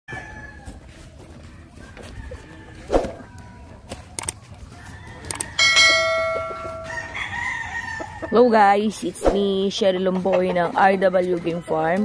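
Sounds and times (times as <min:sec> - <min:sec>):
chickens clucking: 0:00.1 - 0:12.0
sharp clicks: 0:04.1 - 0:04.4.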